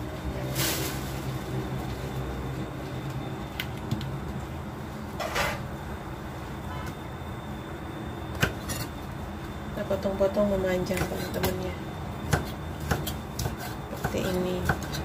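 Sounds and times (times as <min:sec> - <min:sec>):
knife scraping board: 0:13.0 - 0:14.1.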